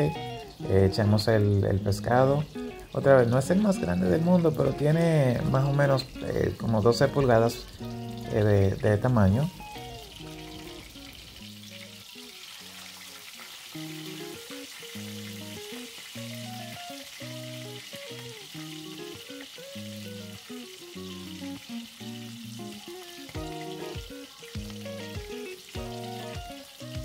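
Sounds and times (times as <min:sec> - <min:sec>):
background music with bass line: 0:00.0 - 0:11.8, 0:21.0 - 0:27.0
fish sizzling in hot oil: 0:00.0 - 0:27.0.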